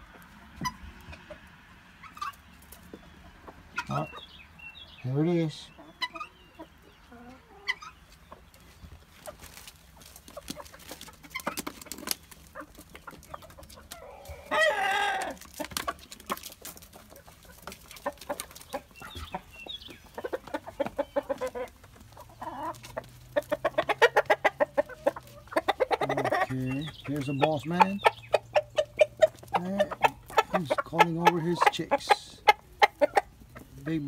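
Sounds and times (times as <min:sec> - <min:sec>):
chickens clucking: 0:00.0 - 0:34.0
chicken loud call: 0:13.9 - 0:15.4.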